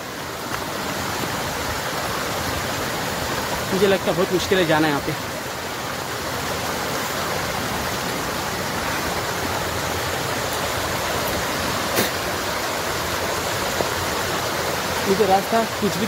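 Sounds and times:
water flowing over rocks: 0:00.0 - 0:16.0.

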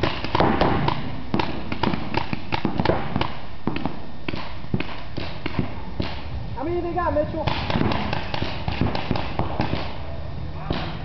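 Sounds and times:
paintball markers firing: 0:00.0 - 0:06.2, 0:07.4 - 0:10.0.

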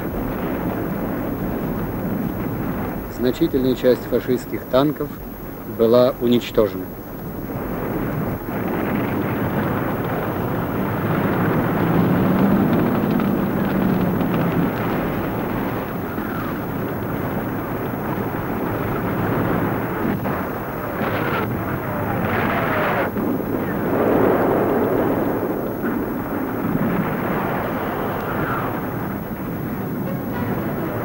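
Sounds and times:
engines rumbling: 0:00.0 - 0:31.0
explosions: 0:07.4 - 0:31.0.

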